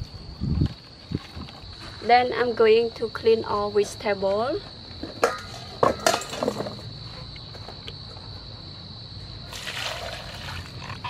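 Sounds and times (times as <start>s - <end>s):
water splashing into bowl: 9.5s - 10.8s.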